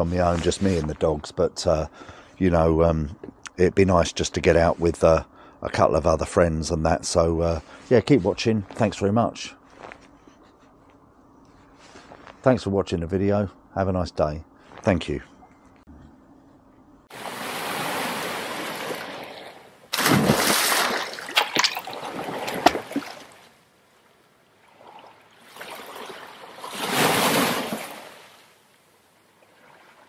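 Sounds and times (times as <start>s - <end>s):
loud water splash: 17.1s - 23.5s, 24.8s - 28.4s
rushing water: 17.1s - 23.6s, 24.5s - 28.6s.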